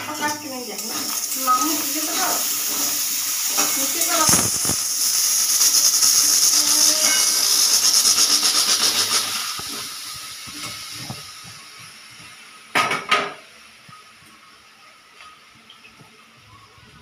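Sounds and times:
pressure cooker whistle hissing: 0.1 - 11.8.

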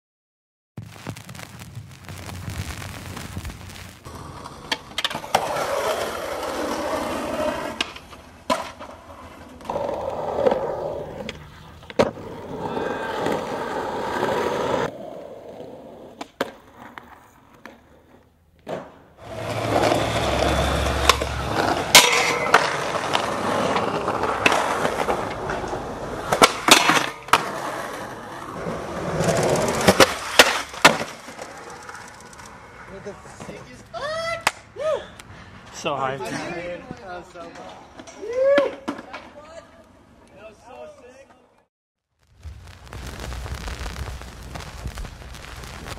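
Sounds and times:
skateboard wheels rolling on concrete: 1.7 - 41.7
skateboard clacking on ground: 4.1 - 6.5, 7.6 - 12.6, 16.1 - 28.2, 28.9 - 33.7.

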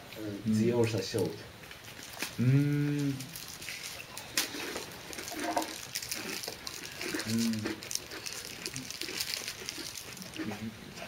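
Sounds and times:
man's hesitation sound: 2.4 - 3.3.

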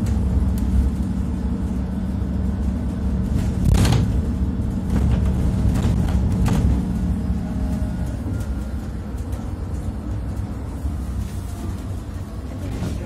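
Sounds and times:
engine and road rumble: 0.0 - 13.0.

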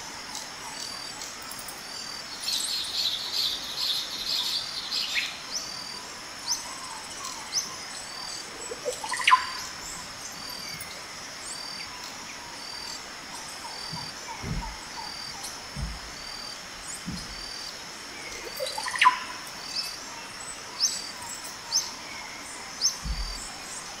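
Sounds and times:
insects chirping: 0.0 - 24.0
birds calling: 2.3 - 24.0
low thumps: 13.9 - 17.6, 23.0 - 23.5.

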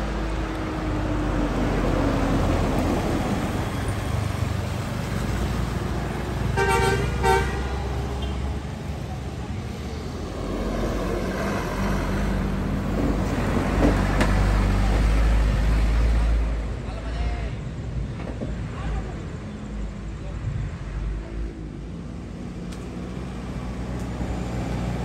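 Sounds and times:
vehicle engines rumbling past: 0.0 - 25.0
vehicle horn honks: 6.5 - 8.4.

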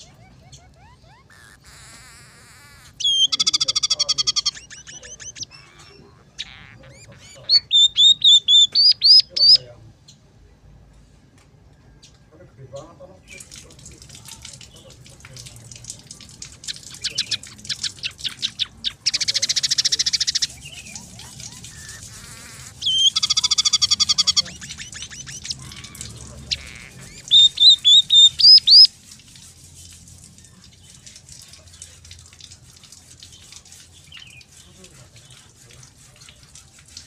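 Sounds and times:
bird singing trills and whistles: 0.0 - 9.6, 16.6 - 28.9.

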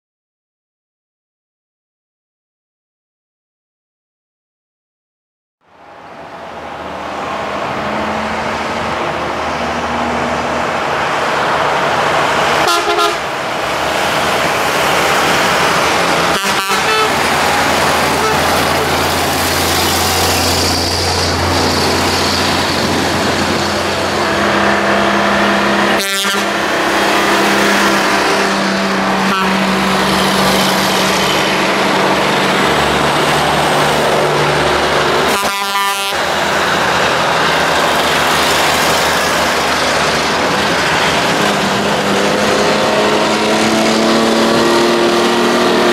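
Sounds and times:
heavy truck engines passing: 5.6 - 45.9
tyre and road noise: 5.6 - 45.9
truck horn blasts: 12.6 - 13.4, 16.2 - 19.2, 25.3 - 30.1, 35.2 - 36.3.

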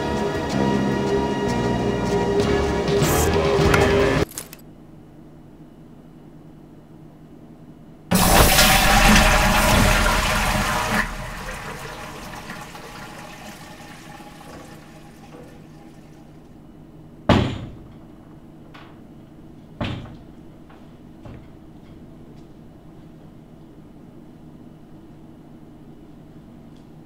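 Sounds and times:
sharp bangs: 8.1 - 12.9
toilet flushing: 8.1 - 16.6.

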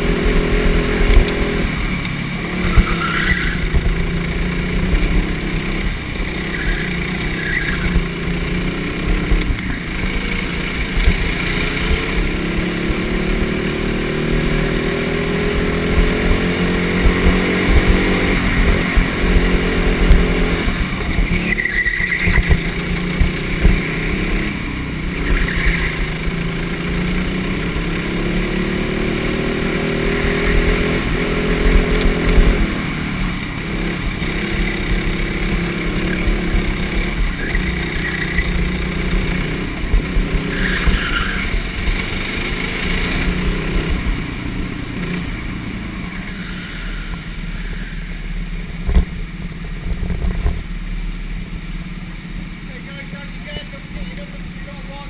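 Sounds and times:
go-kart engine revving: 0.0 - 55.0.

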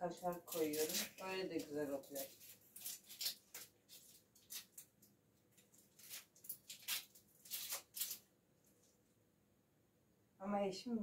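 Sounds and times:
knife cutting onion: 0.2 - 4.8.

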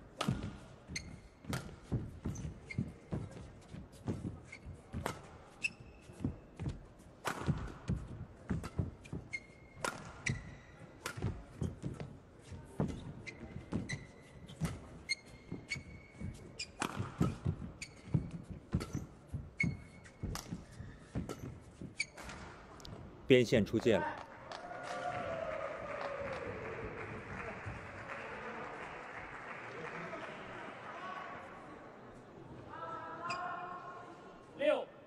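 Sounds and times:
racket striking shuttlecock: 0.2 - 0.6, 7.2 - 7.9, 9.8 - 10.4, 11.0 - 11.4, 16.8 - 17.4, 19.7 - 22.5
shoes squeaking on court: 0.2 - 22.8, 33.2 - 33.6.

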